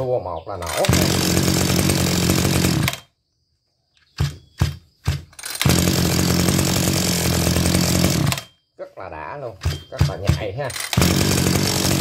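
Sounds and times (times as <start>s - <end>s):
brush cutter engine running: 0.6s - 3.1s, 4.2s - 8.6s, 9.5s - 12.0s
starter rope pulled: 0.6s - 3.1s, 4.1s - 8.6s, 9.4s - 12.0s.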